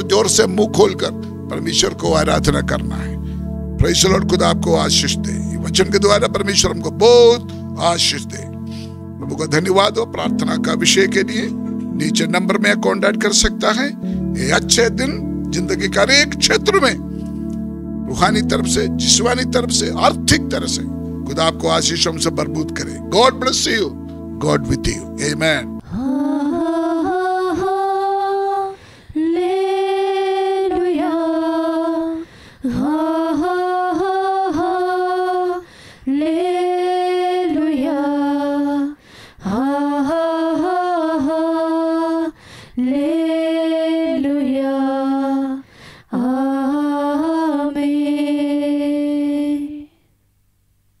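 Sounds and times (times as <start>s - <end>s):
singer breathing: 3.1s - 3.6s, 8.6s - 9.0s, 14.0s - 14.3s, 28.8s - 29.2s, 32.2s - 32.7s, 35.6s - 36.1s, 39.0s - 39.4s, 42.4s - 42.8s, 45.6s - 46.1s
woman singing slow melody: 25.8s - 50.1s.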